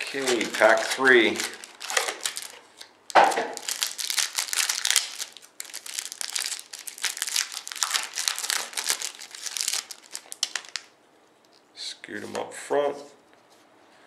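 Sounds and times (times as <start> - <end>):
foil wrapper tearing: 0.0 - 10.9
foil wrapper crinkling: 0.0 - 11.0.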